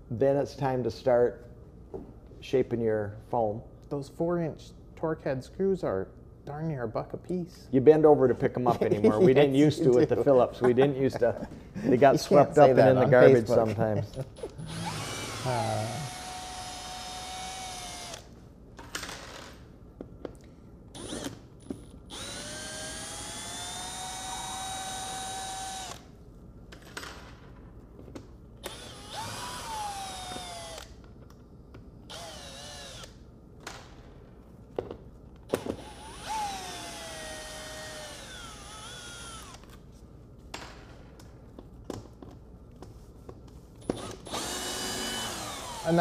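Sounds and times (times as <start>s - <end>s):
cordless drill motor whining: 14.5s - 18.3s, 21.0s - 21.4s, 22.1s - 26.1s, 28.6s - 31.0s, 32.1s - 33.2s, 35.6s - 39.7s, 43.8s - 46.0s.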